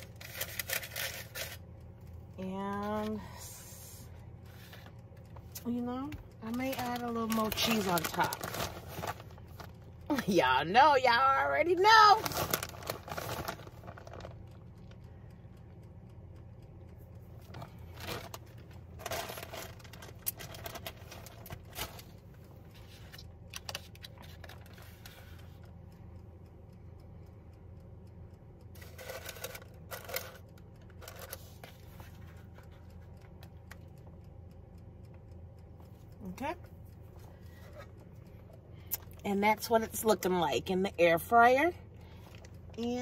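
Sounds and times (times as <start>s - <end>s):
steady low hum: 0.0s - 43.0s
plastic bag rustling: 12.2s - 14.2s.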